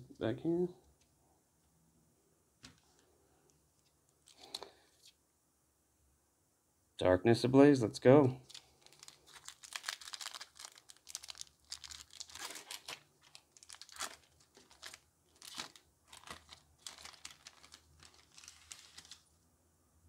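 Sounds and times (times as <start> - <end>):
foil wrapper crinkling and tearing: 8.4 - 19.3.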